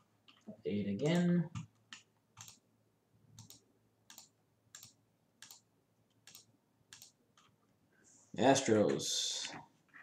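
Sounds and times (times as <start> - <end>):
computer mouse clicking: 1.0 - 2.6, 3.4 - 7.6.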